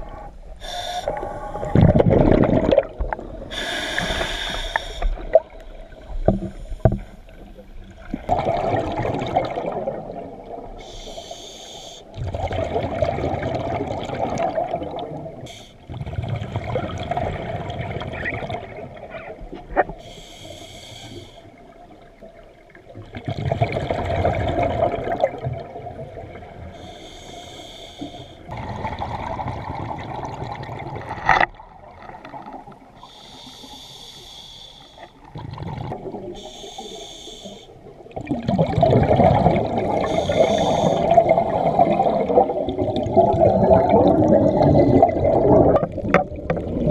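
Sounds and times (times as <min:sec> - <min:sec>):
exhaled bubbles gurgling: 0:00.0 - 0:11.2, 0:12.1 - 0:20.0, 0:21.6 - 0:27.0, 0:28.5 - 0:33.1, 0:35.2 - 0:46.9
regulator inhale hiss: 0:00.6 - 0:01.7, 0:03.5 - 0:05.3, 0:06.4 - 0:07.6, 0:10.8 - 0:12.2, 0:15.5 - 0:15.8, 0:20.0 - 0:21.6, 0:26.7 - 0:28.5, 0:33.0 - 0:35.2, 0:36.4 - 0:37.8, 0:40.0 - 0:41.2.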